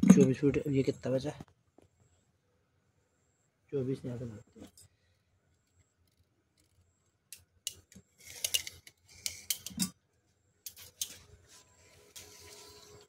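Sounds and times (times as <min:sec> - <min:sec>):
knife blade scraping: 0:08.2 - 0:09.9
metal cups clinking: 0:08.3 - 0:10.0.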